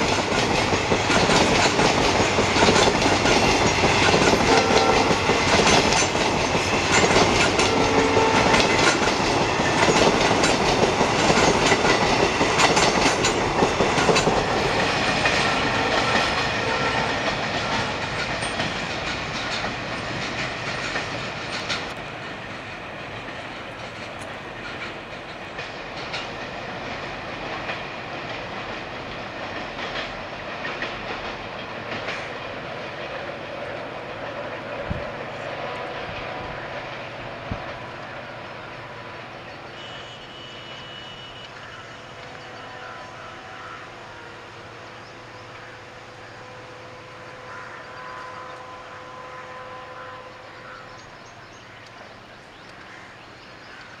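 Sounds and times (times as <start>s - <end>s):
train wheels clattering over rail joints: 0.0s - 38.0s.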